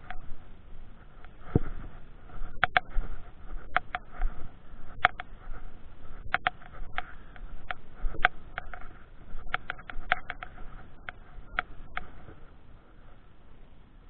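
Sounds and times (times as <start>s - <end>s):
faint low rumble: 0.0s - 14.0s
camera handling clicks and taps: 9.5s - 12.1s.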